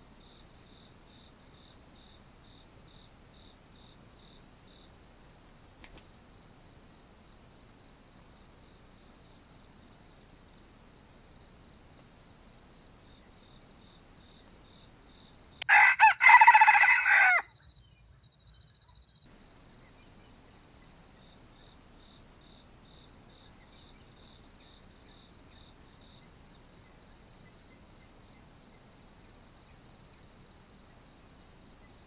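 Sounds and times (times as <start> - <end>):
insect trill: 5.7 - 32.0
rooster crowing: 15.6 - 17.5.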